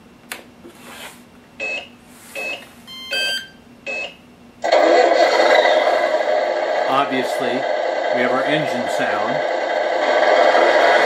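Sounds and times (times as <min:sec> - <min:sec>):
simulated truck engine sound: 0:04.6 - 0:11.0.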